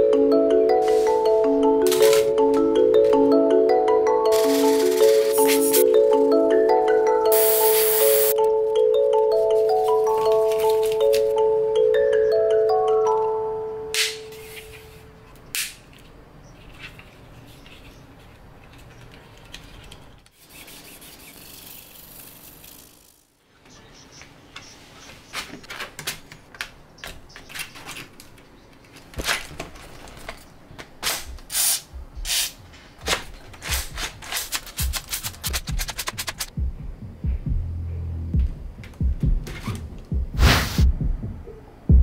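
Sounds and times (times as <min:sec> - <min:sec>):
plastic parts rubbing and sliding: 0:04.3 - 0:05.8, 0:16.6 - 0:23.2, 0:32.3 - 0:36.5.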